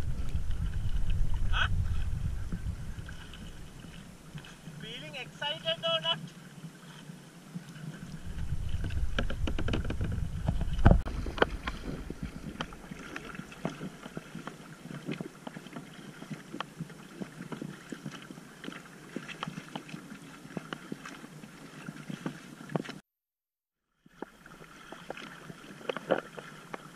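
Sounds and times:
wind on microphone: 0:00.0 - 0:05.0, 0:07.5 - 0:19.7
kayak paddles splashing: 0:00.0 - 0:23.0, 0:24.0 - 0:26.9.

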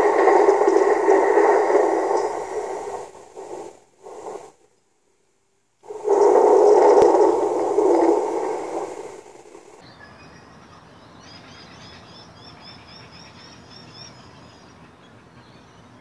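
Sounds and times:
loud rushing static noise: 0:00.0 - 0:04.6, 0:05.8 - 0:09.8.

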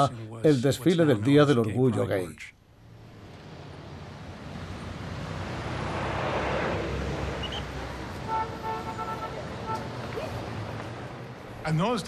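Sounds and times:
car passing close by: 0:02.9 - 0:11.4.

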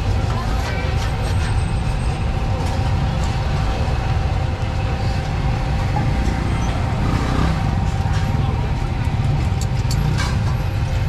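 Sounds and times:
low mechanical rumble: 0:00.0 - 0:11.0.

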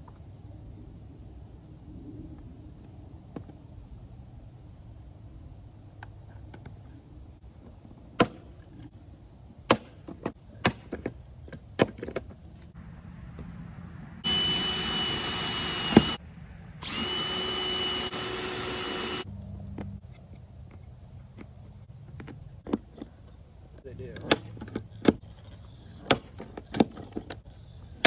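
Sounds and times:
cordless drill drilling into wood: 0:14.2 - 0:16.2, 0:16.8 - 0:19.3.

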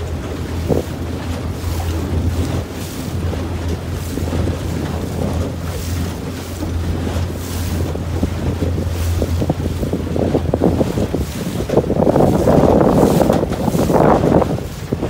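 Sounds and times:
water rushing and splashing: 0:00.0 - 0:15.0
wind buffeting microphone: 0:00.0 - 0:15.0.

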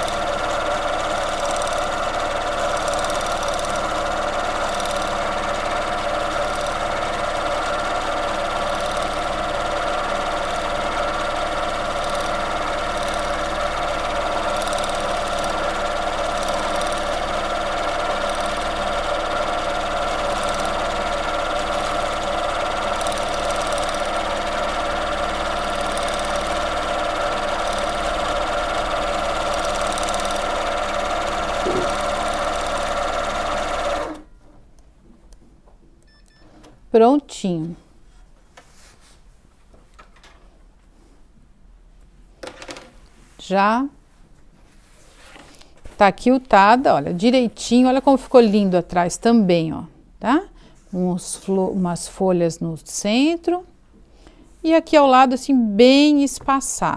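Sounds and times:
sewing machine running: 0:00.0 - 0:34.3.

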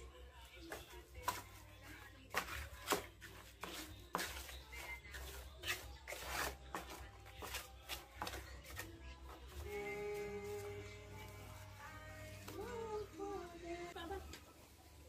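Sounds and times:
trowel scraping wet mortar: 0:01.2 - 0:08.9.

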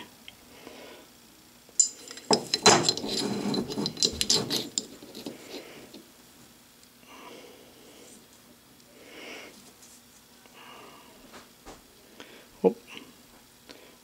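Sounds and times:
metal micrometer clinking and scraping: 0:01.8 - 0:06.0.

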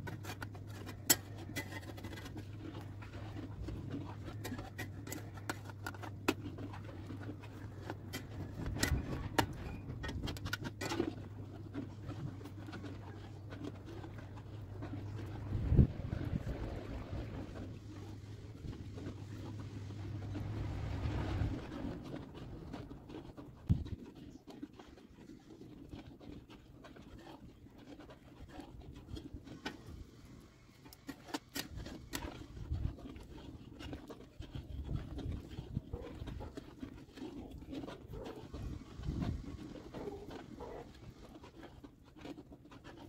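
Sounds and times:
metal ladle clicks and scrapes: 0:00.0 - 0:16.7, 0:28.0 - 0:38.5
steady low hum: 0:00.0 - 0:24.4
low rumbling background: 0:00.0 - 0:25.1.

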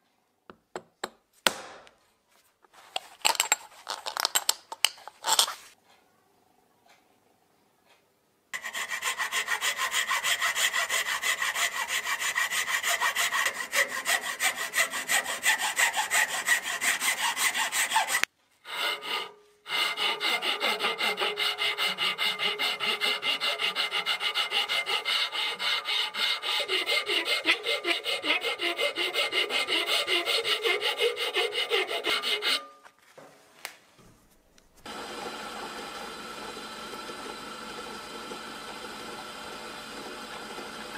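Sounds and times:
hand file rasping on metal: 0:08.6 - 0:32.8.

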